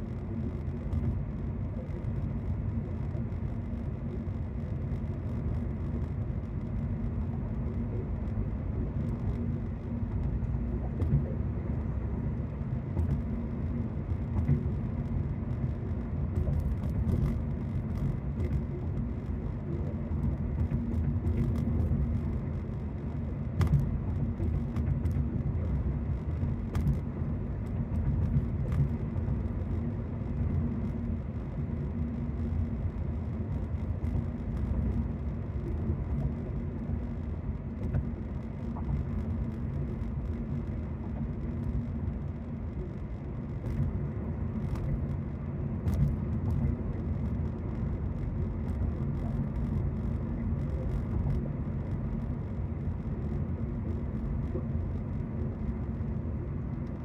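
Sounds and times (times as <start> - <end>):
car cabin road and engine rumble: 0.0 - 57.0.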